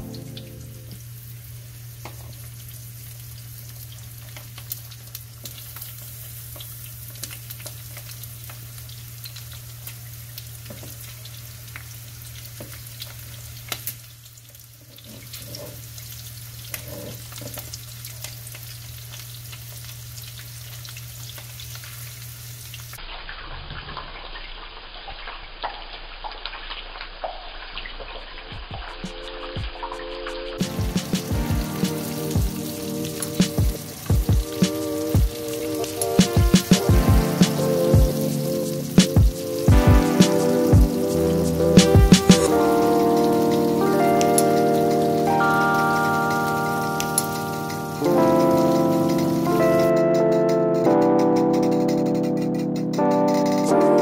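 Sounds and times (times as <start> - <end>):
fish sizzling in oil: 0.0 - 49.6
oil pops and crackles: 3.6 - 21.9.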